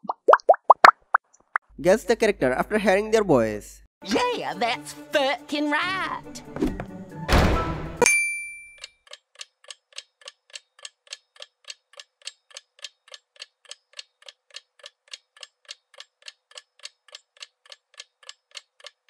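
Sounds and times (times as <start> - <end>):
ringing ping: 8.0 - 8.9
clock ticking: 9.0 - 19.0.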